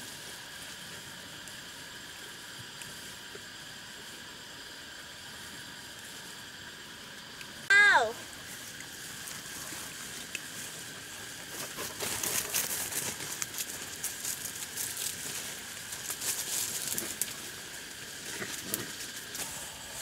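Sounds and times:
plants rustling and crackling: 0:08.4 - 0:20.0.

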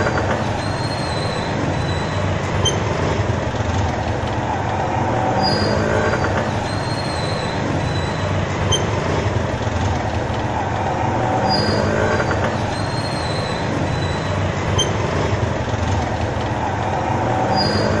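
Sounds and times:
street traffic rumble: 0:00.0 - 0:18.0.

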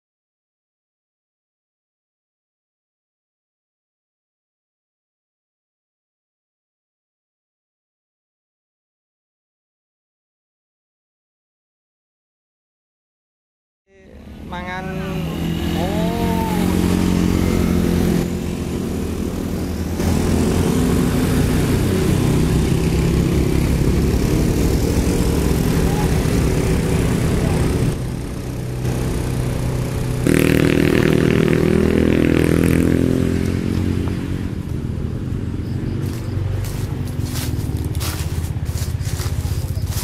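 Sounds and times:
motorcycle passing: 0:13.9 - 0:40.0
truck diesel engine under load: 0:14.1 - 0:40.0.

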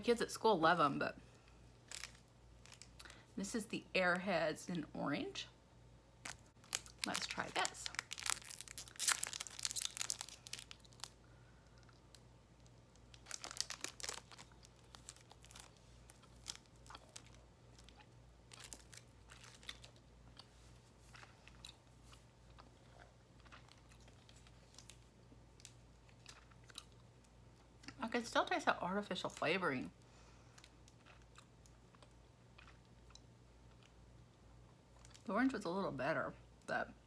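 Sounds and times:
candy wrapper crinkling and tearing: 0:01.8 - 0:03.2, 0:06.2 - 0:20.4, 0:23.4 - 0:27.4
faint chewing: 0:10.1 - 0:25.0, 0:30.5 - 0:34.0.

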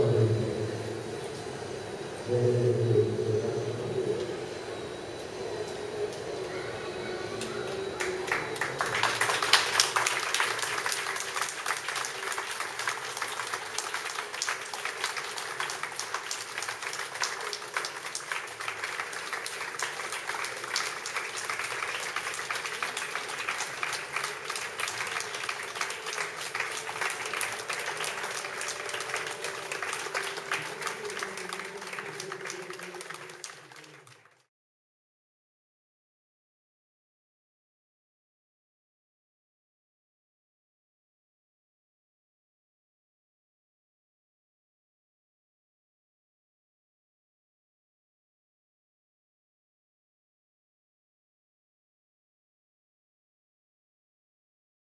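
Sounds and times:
audience applause: 0:07.3 - 0:34.5.

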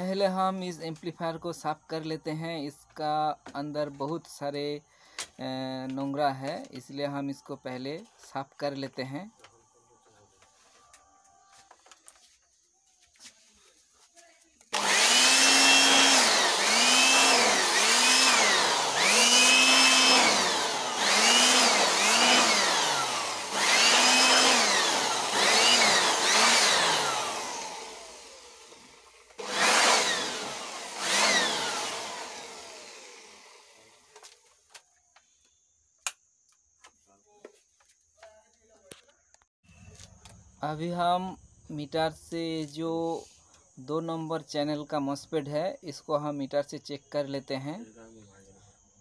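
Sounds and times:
electric air blower motor whine: 0:14.7 - 0:34.3.

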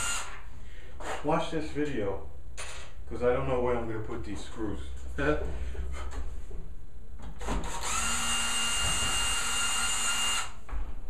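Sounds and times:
cordless drill whining: 0:00.0 - 0:00.4, 0:07.4 - 0:10.6.

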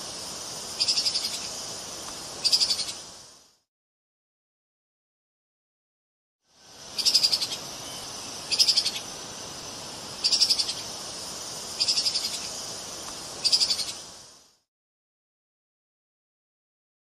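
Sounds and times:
steady hiss: 0:00.0 - 0:03.7, 0:06.4 - 0:14.7.

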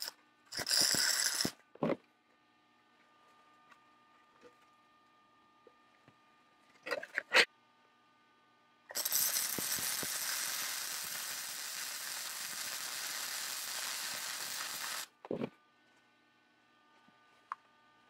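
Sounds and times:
welding arc crackling: 0:00.0 - 0:01.6, 0:08.9 - 0:15.2.

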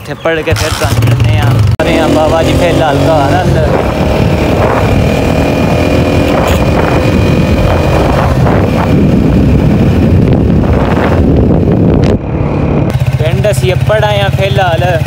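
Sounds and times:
motorcycle engine running: 0:00.3 - 0:15.0
wind rush over microphone: 0:03.2 - 0:12.9.

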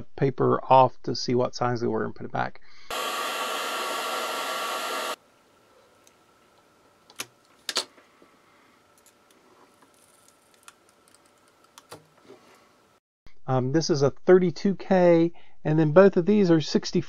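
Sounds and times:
heat gun blowing air: 0:02.9 - 0:05.2.

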